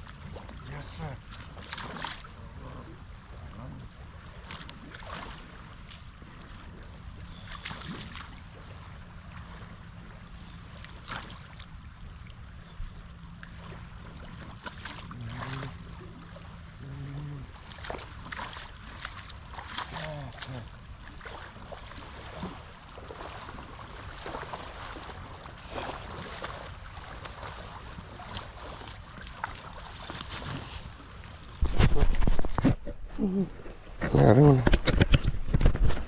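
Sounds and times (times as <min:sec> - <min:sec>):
river flowing: 0:00.0 - 0:34.2.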